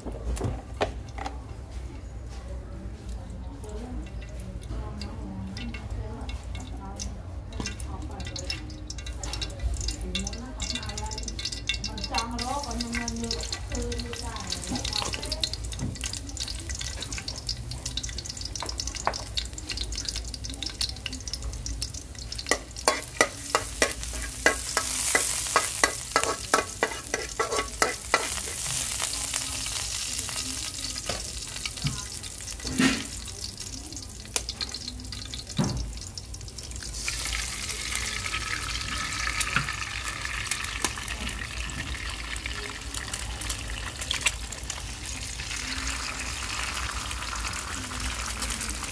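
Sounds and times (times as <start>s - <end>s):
eggs sizzling in hot oil: 3.4s - 48.9s
garlic sizzling in oil: 5.0s - 48.9s
metal spatula scraping a wok: 22.5s - 29.1s.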